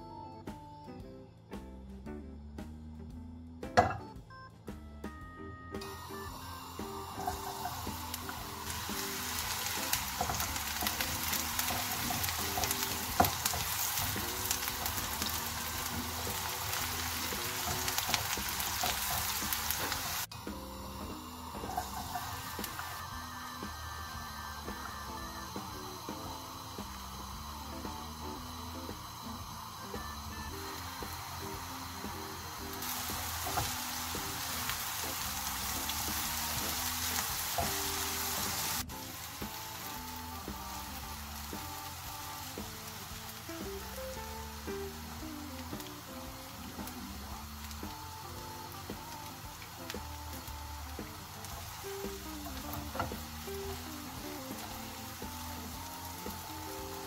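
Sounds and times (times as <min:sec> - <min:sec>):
soft background music: 0:00.0 - 0:57.0
onion sizzling in oil: 0:05.8 - 0:57.0
spatula stirring in pan: 0:06.6 - 0:23.8.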